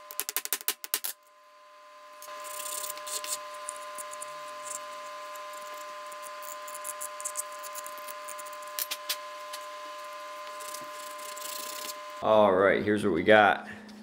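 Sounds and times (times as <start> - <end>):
electrical hum: 0.0 - 14.0
scratchy ticks on sandpaper: 2.3 - 9.7, 10.4 - 12.0.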